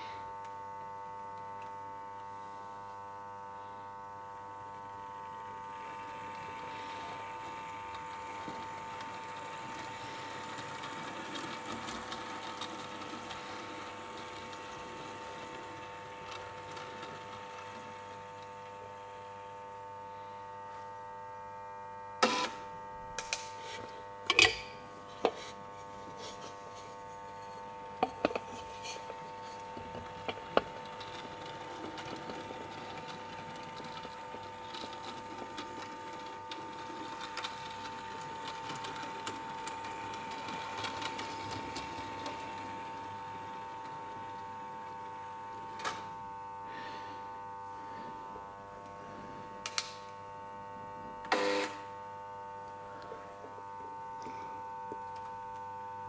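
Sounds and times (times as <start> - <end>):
small electric motor whirring: 51.3 - 51.8.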